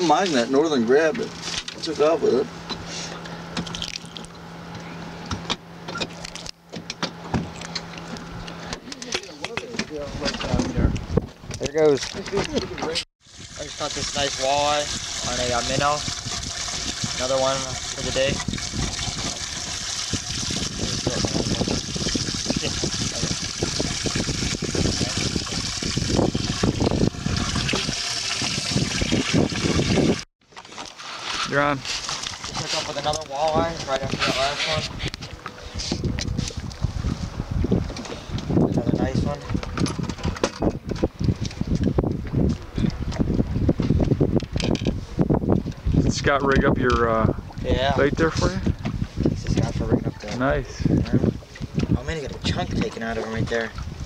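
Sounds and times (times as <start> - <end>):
water lapping against boat: 0.0 - 44.2, 45.1 - 54.0
low motor hum: 0.8 - 9.1, 13.3 - 30.3
clicks and knocks on aluminium boat: 8.7 - 13.0, 37.9 - 45.8.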